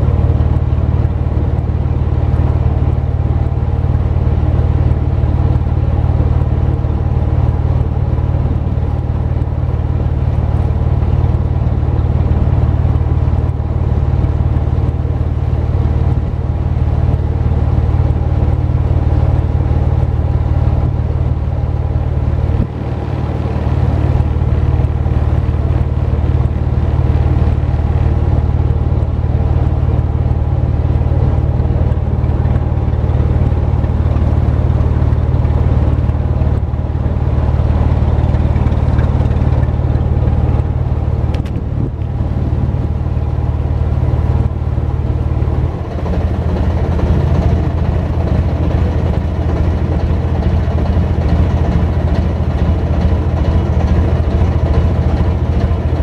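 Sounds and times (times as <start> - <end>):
boat engine droning: 0.0 - 56.0.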